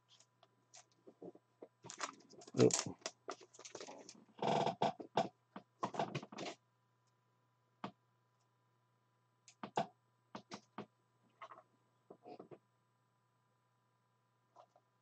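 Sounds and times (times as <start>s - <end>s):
cards rustling and scraping: 1.8s - 4.2s.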